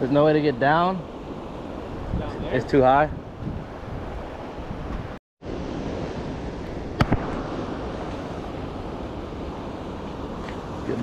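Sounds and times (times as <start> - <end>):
wind on microphone: 0.8 - 11.0.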